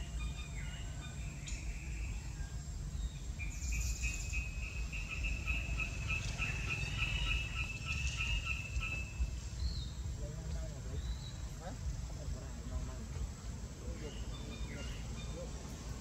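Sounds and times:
insect trilling: 0.0s - 10.2s.

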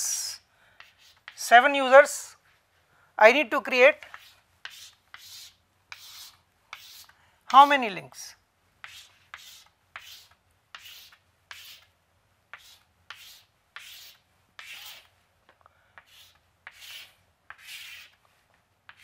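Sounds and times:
chalk tapping on chalkboard: 0.8s - 1.5s, 4.0s - 7.7s, 8.8s - 11.9s, 12.5s - 18.2s
chalk scratching on chalkboard: 0.8s - 1.6s, 4.0s - 7.8s, 8.8s - 11.9s, 12.5s - 15.1s, 16.0s - 18.2s.

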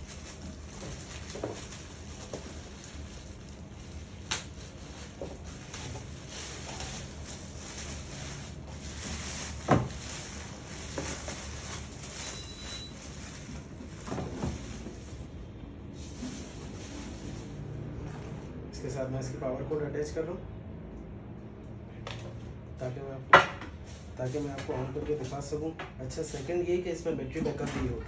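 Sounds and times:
plastic bag rustling: 0.0s - 18.5s.

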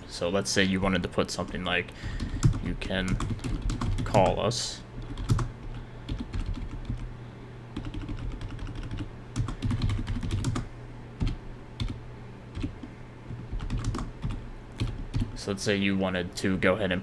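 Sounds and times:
computer keyboard typing: 1.4s - 4.4s, 5.0s - 7.1s, 7.8s - 15.4s.

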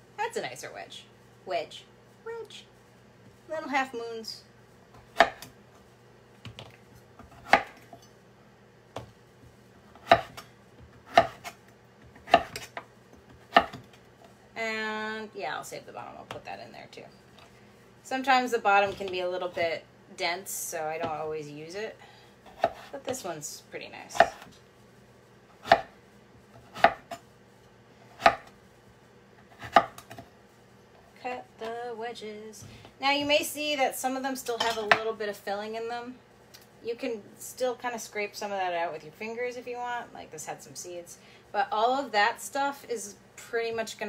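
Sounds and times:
knife chopping on wooden board: 5.1s - 5.5s, 7.2s - 7.8s, 10.0s - 10.4s, 11.0s - 11.6s, 12.2s - 13.9s, 22.5s - 22.9s, 25.6s - 25.9s, 26.6s - 27.2s, 28.2s - 28.5s, 29.6s - 30.2s.

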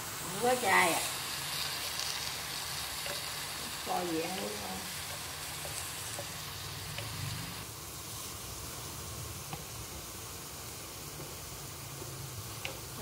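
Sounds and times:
vegetables sizzling in a pot: 0.0s - 13.0s.

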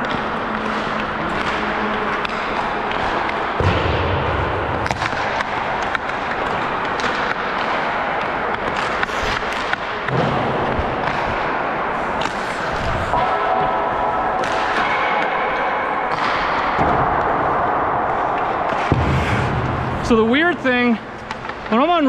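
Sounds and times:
sticks and pucks clacking: 0.0s - 22.0s
skate blades scraping ice: 4.8s - 10.0s, 10.6s - 13.2s.

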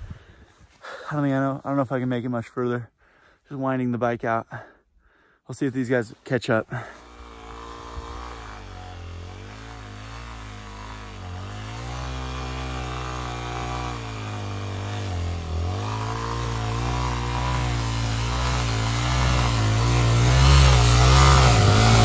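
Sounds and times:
motorcycle engine revving: 6.8s - 22.0s.

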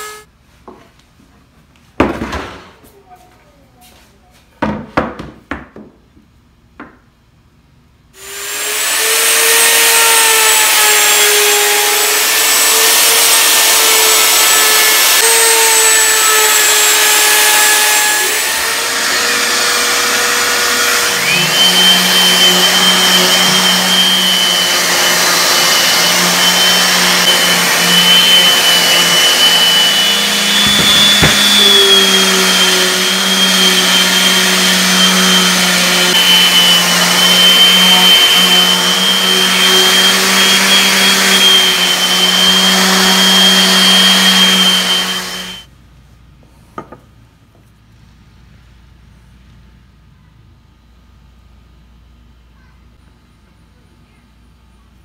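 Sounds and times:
orbital sander: 8.2s - 45.7s
router running: 8.2s - 45.7s
cutting board knocking on wood: 30.6s - 31.6s.

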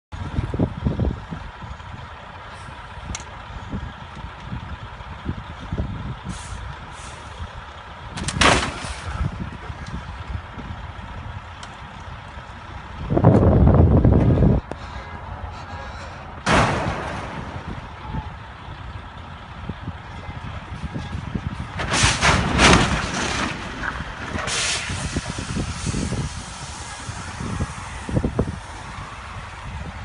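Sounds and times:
heavy trucks rumbling: 0.1s - 30.0s
wind buffeting microphone: 0.1s - 30.0s
truck air brakes hissing: 6.2s - 7.4s, 21.8s - 22.5s, 24.4s - 28.9s.

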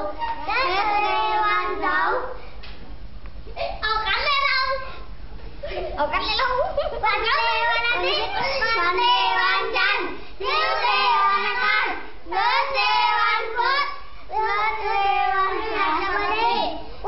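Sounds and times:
young children singing: 0.0s - 2.4s, 7.2s - 17.0s.

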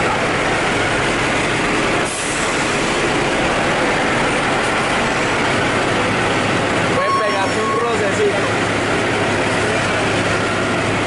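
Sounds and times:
diesel truck engine running: 0.0s - 11.0s.

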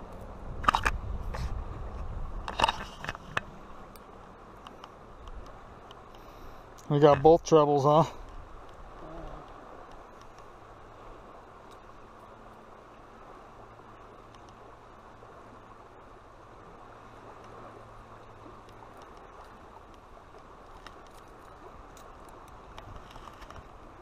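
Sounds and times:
river flowing: 0.0s - 24.0s
faint small clicks: 2.4s - 6.9s, 8.2s - 10.5s, 14.2s - 14.6s, 18.6s - 23.7s
low voice murmur: 9.0s - 9.5s.

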